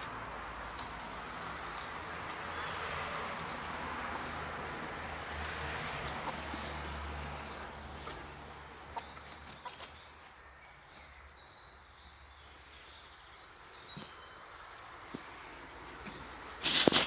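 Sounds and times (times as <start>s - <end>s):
hens clucking: 5.2s - 10.3s.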